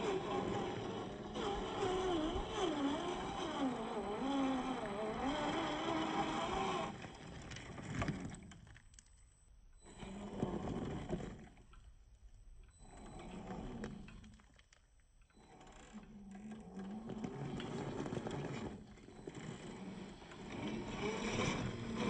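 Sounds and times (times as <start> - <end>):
toy car motor whining: 0.0 - 7.1, 15.4 - 22.0.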